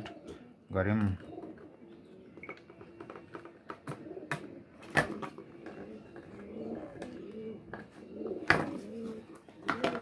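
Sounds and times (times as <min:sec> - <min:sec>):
bird cooing: 0:00.0 - 0:10.0.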